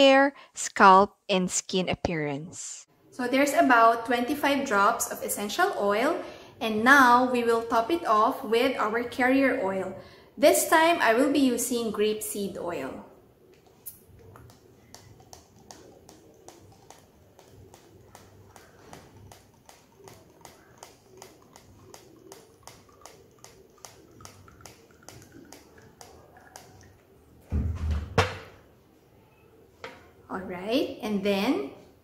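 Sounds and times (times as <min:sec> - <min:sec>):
thump: 0:27.5 - 0:28.5.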